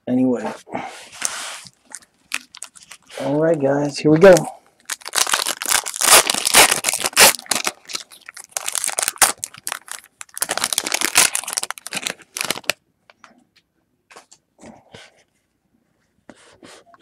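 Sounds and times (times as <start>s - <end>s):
foil wrapper crinkling: 1.7s - 3.2s, 4.2s - 12.8s.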